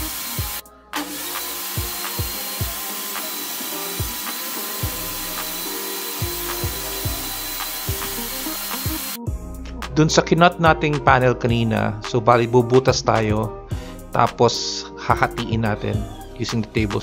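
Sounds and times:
table saw cutting wood: 0:00.0 - 0:09.2
background music with low beat: 0:00.0 - 0:17.0.

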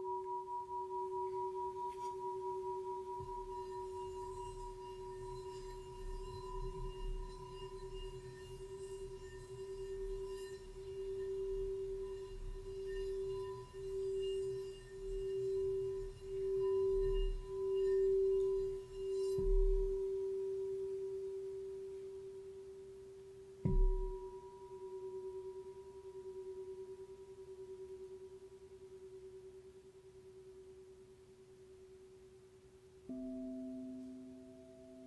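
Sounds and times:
singing bowl ringing tone: 0:00.0 - 0:31.1, 0:33.0 - 0:35.0
mallet striking singing bowl: 0:23.6 - 0:24.3.

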